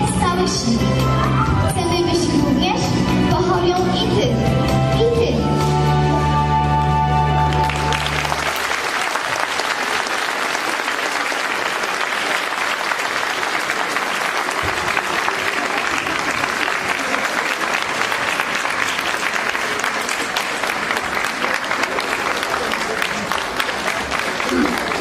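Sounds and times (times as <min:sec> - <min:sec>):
audience applauding: 0:07.4 - 0:25.0.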